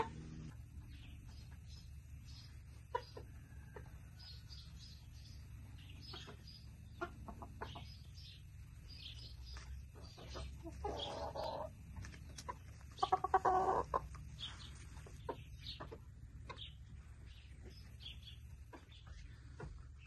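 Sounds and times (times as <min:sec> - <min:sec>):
chickens clucking: 0:00.0 - 0:20.0
chicken calls: 0:02.3 - 0:20.0.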